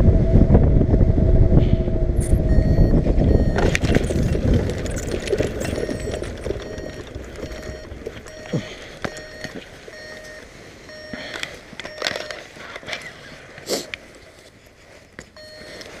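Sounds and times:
trike rolling over bumpy grass: 0:02.8 - 0:16.0
frame rattling and clicking: 0:03.3 - 0:08.4.

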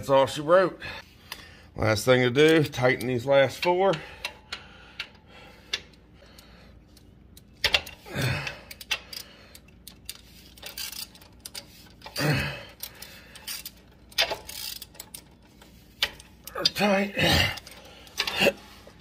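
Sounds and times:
wrench metal clicks: 0:02.4 - 0:19.0
tool clatter: 0:07.4 - 0:08.0.

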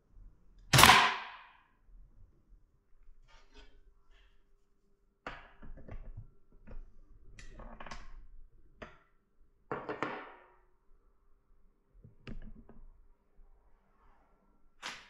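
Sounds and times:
sharp crack: 0:00.7 - 0:01.5.

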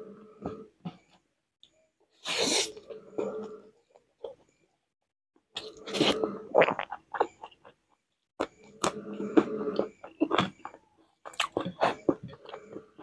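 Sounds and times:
eating mouth noises: 0:05.6 - 0:07.8, 0:08.4 - 0:13.0.

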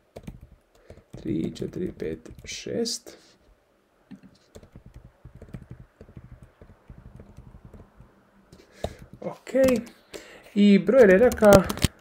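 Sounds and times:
typing on computer keyboard: 0:00.1 - 0:02.6, 0:04.5 - 0:08.1, 0:08.8 - 0:09.9, 0:10.9 - 0:12.0.

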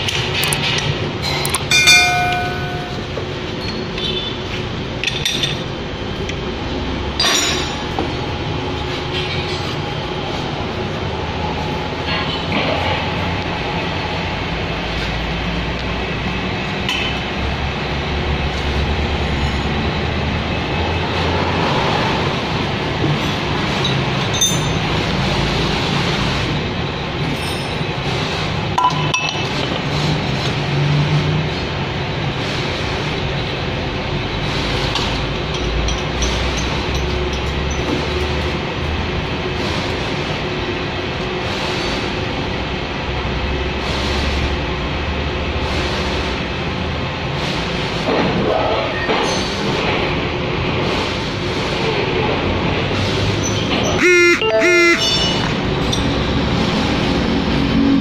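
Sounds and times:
workshop rumble: 0:00.0 - 0:48.5, 0:49.1 - 0:58.0
steady mechanical noise: 0:00.0 - 0:58.0
hand tools clinking on metal: 0:01.3 - 0:04.1, 0:24.2 - 0:24.9
metal clinks on lathe chuck: 0:01.4 - 0:03.0.

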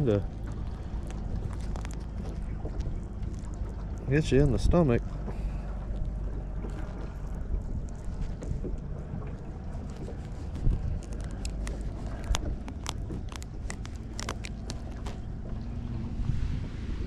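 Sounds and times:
wind buffeting microphone: 0:00.0 - 0:17.0
clicks and taps from handling gear: 0:09.9 - 0:15.2.

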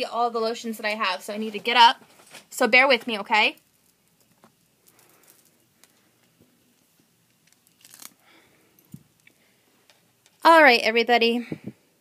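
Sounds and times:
soft handling rustling: 0:01.1 - 0:10.5.

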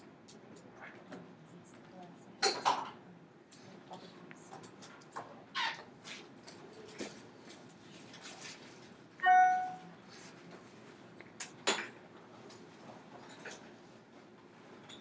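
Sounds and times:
short ringing tone: 0:09.2 - 0:09.9.

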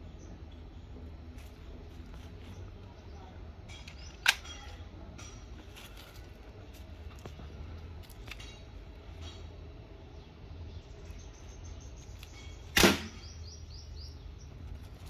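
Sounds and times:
air rifle shot crack: 0:12.7 - 0:13.3.

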